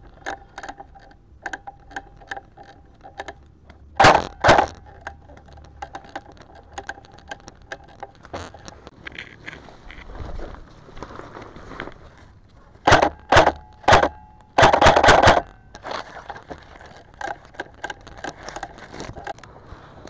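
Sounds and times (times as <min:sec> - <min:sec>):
airsoft rifle firing bursts: 0:04.0 - 0:04.8, 0:12.9 - 0:15.5
leaves and twigs crackling: 0:05.0 - 0:12.8, 0:15.7 - 0:20.0.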